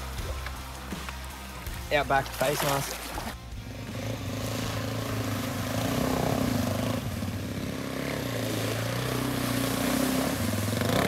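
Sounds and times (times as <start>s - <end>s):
dirt bike engine running: 0.0s - 11.0s
water splashing off wheels: 0.0s - 11.0s.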